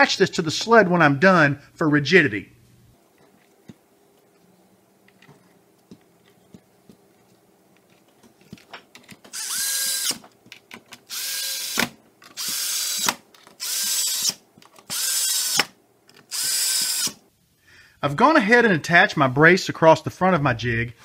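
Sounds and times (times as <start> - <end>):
cordless drill driving screws: 9.3 - 10.2, 11.1 - 15.7, 16.3 - 17.2
screws clicking: 9.3 - 10.2, 11.1 - 17.2.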